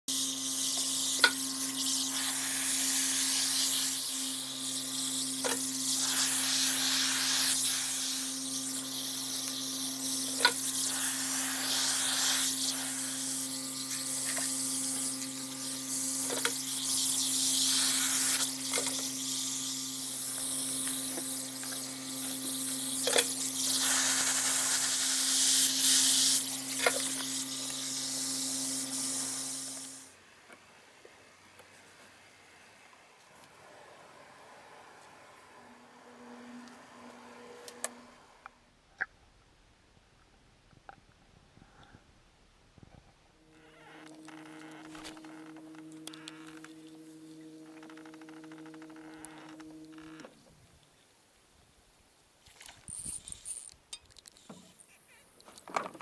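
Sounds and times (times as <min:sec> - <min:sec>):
air compressor humming: 0:00.1 - 0:30.1, 0:43.4 - 0:50.4
airbrush hissing: 0:00.1 - 0:30.1, 0:43.6 - 0:50.2.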